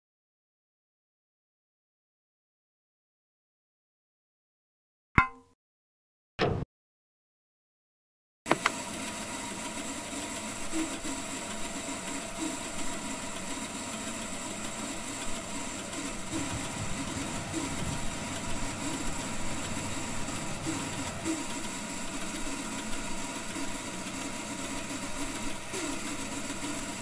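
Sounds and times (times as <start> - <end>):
band saw motor humming: 8.5 - 27.0.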